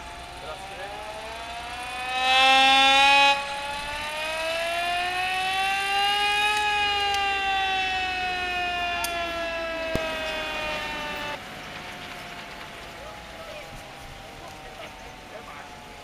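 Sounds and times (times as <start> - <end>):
siren wailing: 0.0 - 16.0
loud blare: 0.4 - 11.4.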